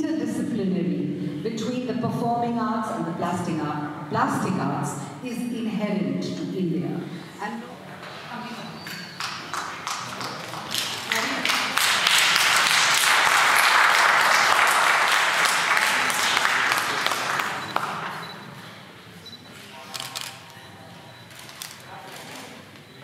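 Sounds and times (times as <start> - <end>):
audience applauding: 9.1 - 18.3.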